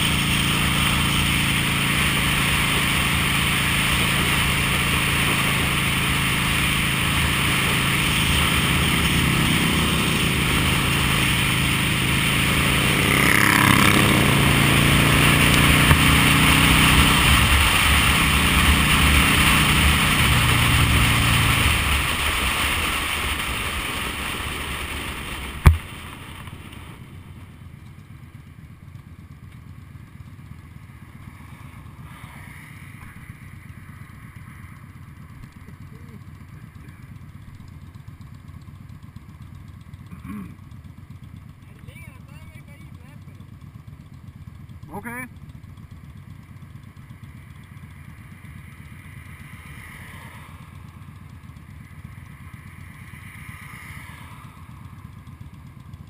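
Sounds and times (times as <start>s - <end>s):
motorcycle engine running: 0.0s - 56.0s
sharp knock: 25.6s - 25.9s.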